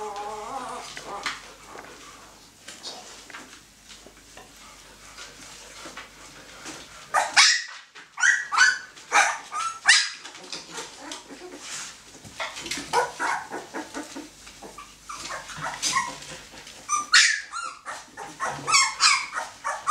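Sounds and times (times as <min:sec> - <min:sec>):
puppies yelping: 0:00.0 - 0:01.4, 0:07.1 - 0:11.8, 0:12.4 - 0:19.9.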